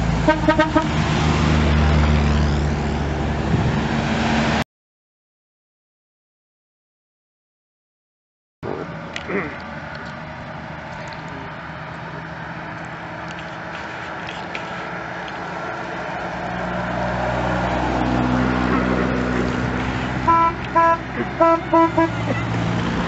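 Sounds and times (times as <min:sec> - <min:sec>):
car engines driving by: 0:00.0 - 0:04.6, 0:08.6 - 0:23.0
car horn short toots: 0:20.3 - 0:22.5.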